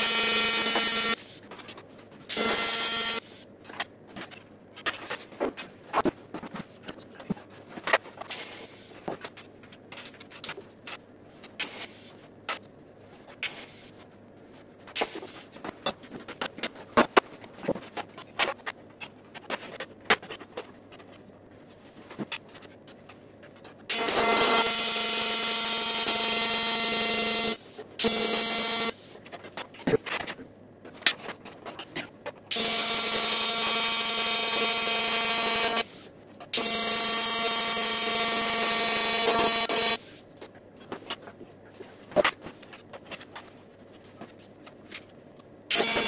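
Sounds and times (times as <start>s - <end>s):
electric welding arc buzzing: 0.0s - 1.2s, 2.3s - 3.3s, 23.9s - 29.0s, 32.5s - 36.0s, 36.6s - 40.0s, 45.7s - 46.0s.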